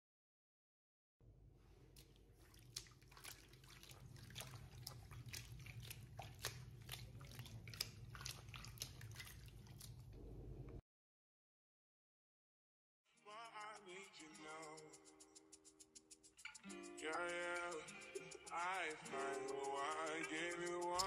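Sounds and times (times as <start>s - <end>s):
soapy wig squelching in water: 1.8s - 10.2s
faint low rumble: 10.1s - 10.8s.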